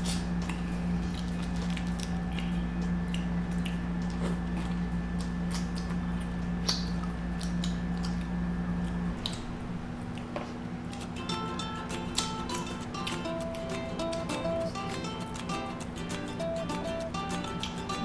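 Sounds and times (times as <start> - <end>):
chewing shellfish: 0.0 - 11.2
low hum: 0.0 - 18.0.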